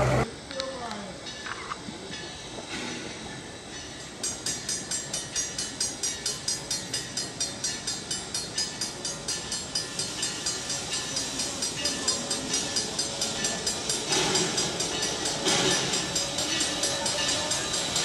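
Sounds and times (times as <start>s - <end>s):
steam locomotive exhaust chuffs: 2.0s - 18.0s.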